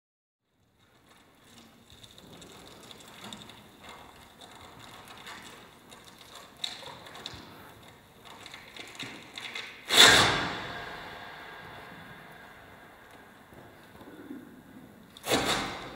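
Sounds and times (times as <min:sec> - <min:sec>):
velcro loud rasping burst: 0:08.9 - 0:11.9, 0:15.2 - 0:15.9.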